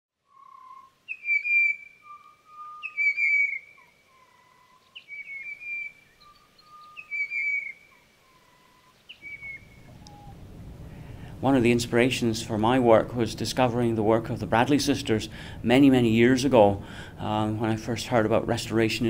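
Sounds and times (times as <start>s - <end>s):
bird singing whistled notes: 0.2s - 10.4s.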